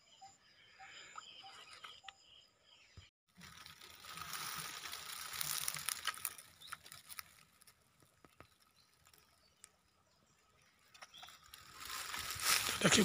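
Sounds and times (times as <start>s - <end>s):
rustling of dry straw: 3.3s - 9.5s, 11.0s - 13.0s.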